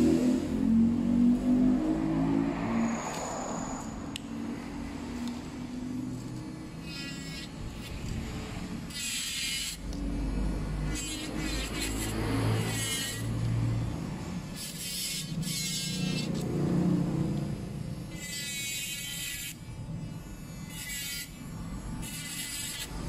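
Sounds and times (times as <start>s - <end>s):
nail drill grinding: 6.3s - 13.6s, 14.4s - 16.6s, 17.4s - 23.0s.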